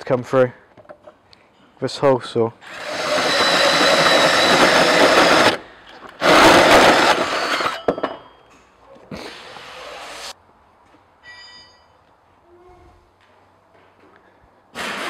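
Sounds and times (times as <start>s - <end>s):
drill cutting sheet metal: 2.6s - 5.6s, 6.2s - 7.8s, 14.8s - 15.0s.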